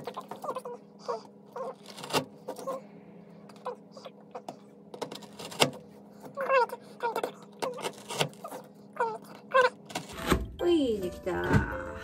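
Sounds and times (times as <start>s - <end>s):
chocolate clicking and squeaking: 0.0s - 2.8s, 3.5s - 10.2s.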